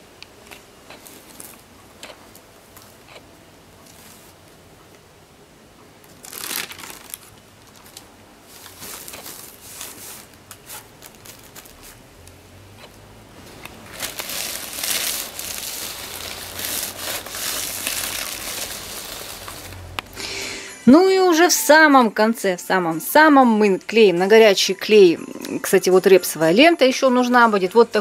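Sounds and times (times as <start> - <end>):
fabric and paper crinkling: 0.5 - 3.2, 3.8 - 4.4, 6.1 - 12.2, 12.8 - 19.9.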